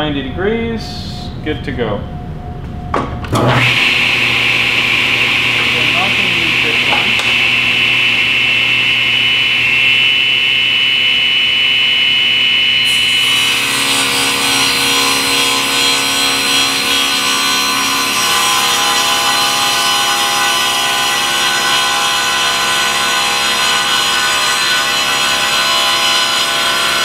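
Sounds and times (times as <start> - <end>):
table saw motor hum: 3.3 - 27.0
saw ripping wooden plank: 3.4 - 10.6, 12.8 - 27.0.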